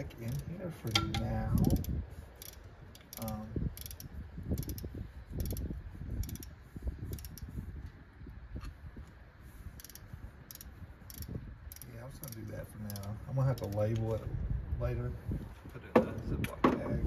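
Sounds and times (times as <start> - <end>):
socket ratchet clicking: 0.2 - 7.5, 9.8 - 14.0
small metal knocks: 0.9 - 1.8.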